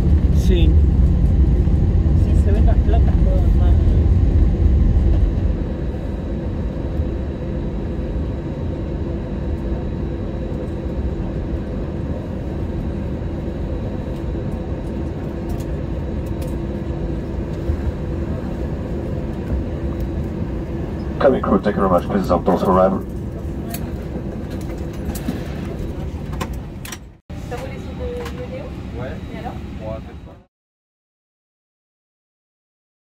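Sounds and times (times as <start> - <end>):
low rumble: 0.0 - 27.2
airliner engine hum: 0.0 - 30.5
faint constant tones: 8.9 - 25.0.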